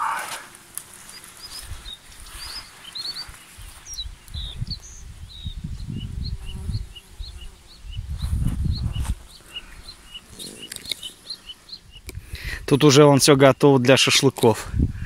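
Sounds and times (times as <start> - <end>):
small birds chirping: 0.0 - 14.6
wind rumbling on microphone: 1.4 - 12.7, 14.6 - 15.0.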